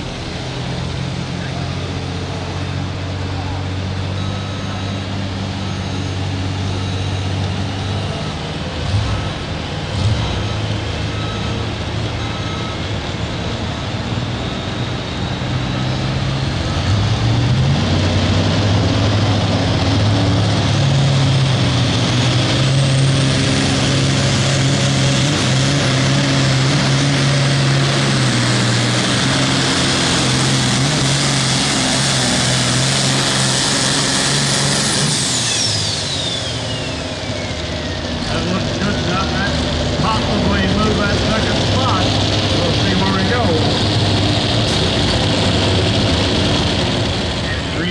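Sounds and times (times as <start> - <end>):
diesel tractor engine revving: 0.0 - 47.9
turbo whistle: 35.0 - 38.0.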